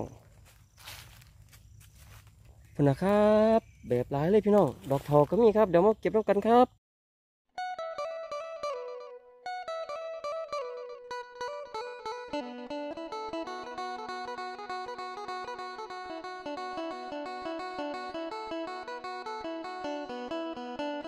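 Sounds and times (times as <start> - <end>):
plucked melody music: 7.6 - 21.0.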